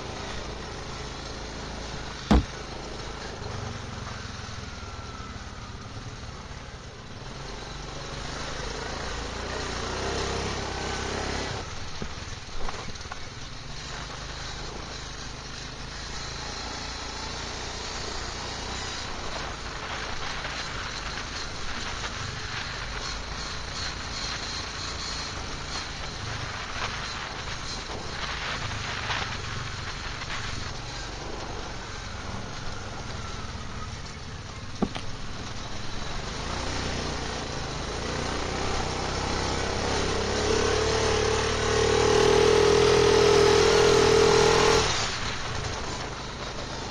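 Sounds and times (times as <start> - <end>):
tyres on dirt: 0.0 - 3.4, 18.6 - 46.9
quad bike engine: 0.0 - 46.9
sharp knock: 2.3 - 2.6.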